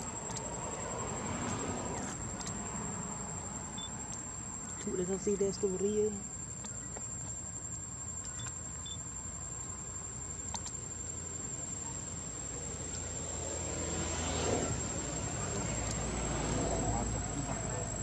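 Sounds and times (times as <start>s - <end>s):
low background hum: 0.0s - 13.7s
insects droning: 0.0s - 18.0s.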